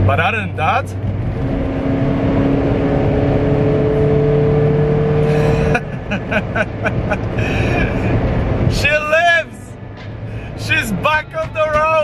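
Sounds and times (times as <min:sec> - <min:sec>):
car engine accelerating: 0:00.0 - 0:08.8
road noise: 0:00.0 - 0:12.0.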